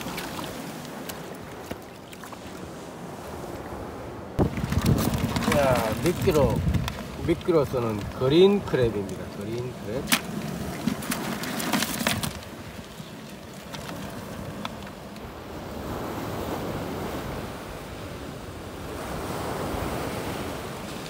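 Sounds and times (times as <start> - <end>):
surf washing over rocks: 0.0 - 3.8, 4.4 - 21.0
wind on microphone: 4.4 - 8.2.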